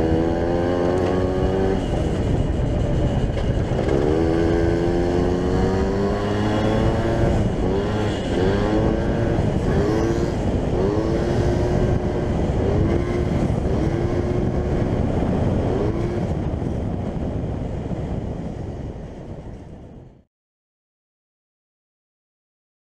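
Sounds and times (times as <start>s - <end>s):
moped engine revving: 0.0s - 16.7s
rushing wind noise: 0.0s - 20.2s.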